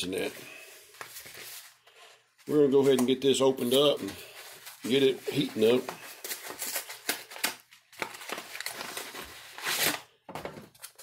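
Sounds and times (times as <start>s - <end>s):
plastic bag crinkling and rustling: 2.4s - 10.0s.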